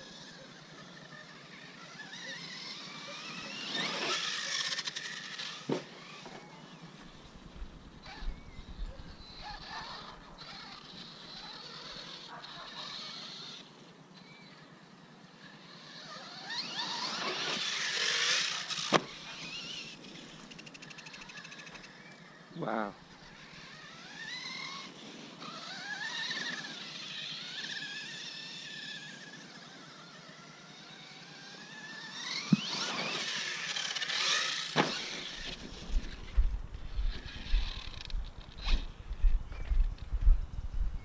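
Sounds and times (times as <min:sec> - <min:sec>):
toy truck electric motor whining: 0:00.0 - 0:07.3, 0:08.0 - 0:39.0.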